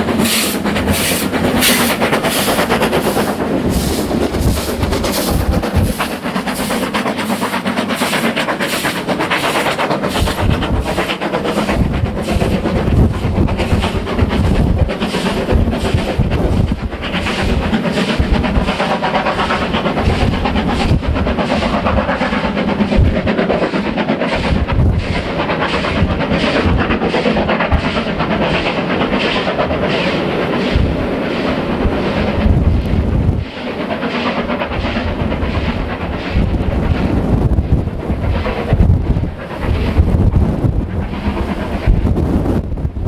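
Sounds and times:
rush of train and wind: 0.0s - 43.0s
steam locomotive exhaust beats: 0.0s - 43.0s.

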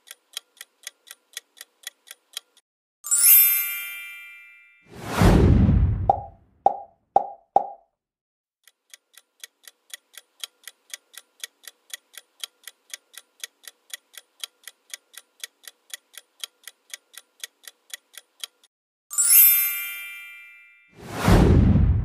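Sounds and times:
clock ticking countdown timer: 0.0s - 2.6s, 8.6s - 18.7s.

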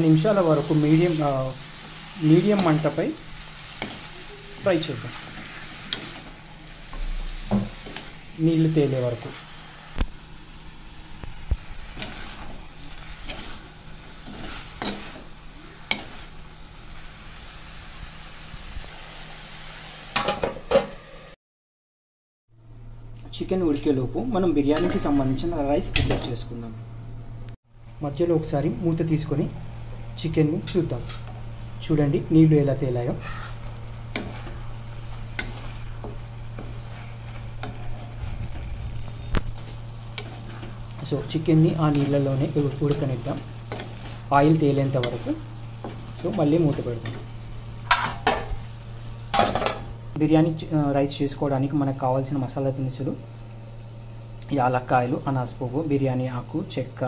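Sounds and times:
chicken and onions sizzling in oil: 0.0s - 21.4s, 27.7s - 57.0s
spoon scraping and knocking pan: 5.1s - 8.2s, 11.9s - 15.3s, 15.9s - 16.3s, 24.8s - 25.2s, 33.2s - 48.6s.

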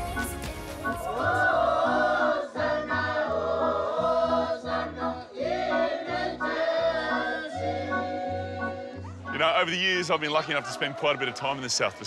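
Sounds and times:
choir singing: 0.0s - 9.5s.

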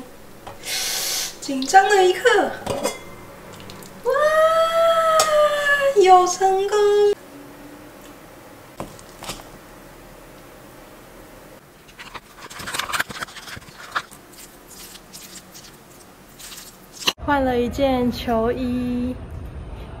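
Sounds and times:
spoon clinking and scraping bowl: 2.7s - 3.2s, 11.9s - 17.2s.

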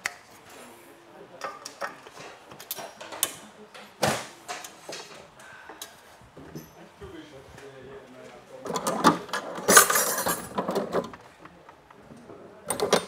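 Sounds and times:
metal parts clicking and knocking: 8.7s - 11.9s, 12.7s - 13.0s.

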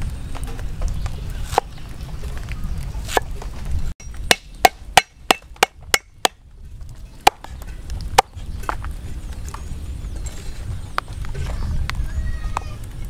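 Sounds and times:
cleaver chopping on wooden block: 4.3s - 6.4s.

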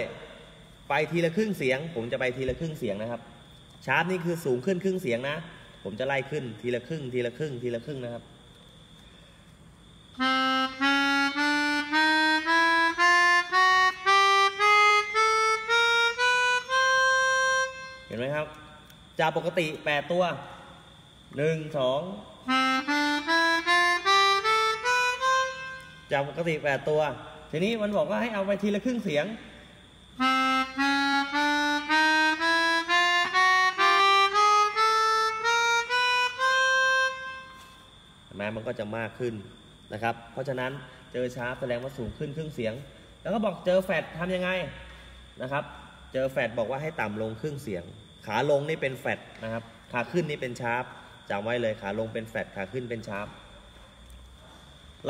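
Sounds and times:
melodica playing a scale: 10.1s - 18.4s, 22.4s - 26.7s, 30.2s - 37.9s.

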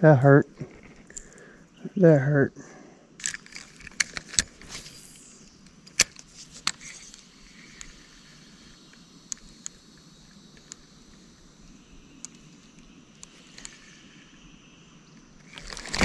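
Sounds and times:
fishing reel clicks and snaps: 3.2s - 9.8s.

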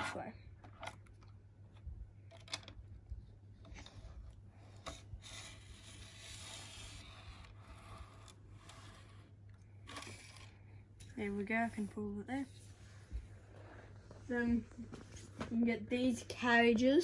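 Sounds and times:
model train wheels scraping on track: 4.9s - 9.3s.

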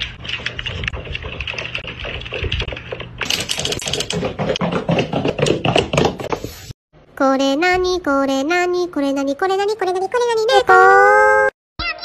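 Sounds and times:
noisy sound with rapid clicks: 0.0s - 6.2s.

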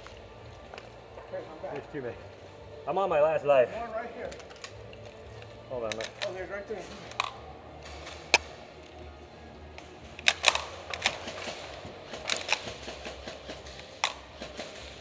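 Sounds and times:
airsoft guns firing: 10.2s - 15.0s.

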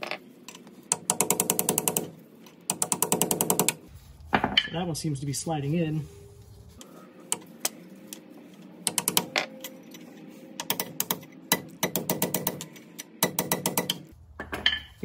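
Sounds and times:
hammer tapping on metal: 8.9s - 9.4s, 10.6s - 14.9s.

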